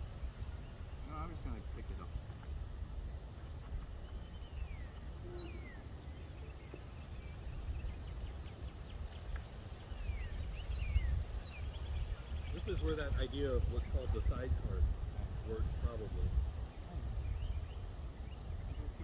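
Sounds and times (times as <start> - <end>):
birds chirping: 0.0 - 19.0
wind rumbling on microphone: 0.0 - 19.0.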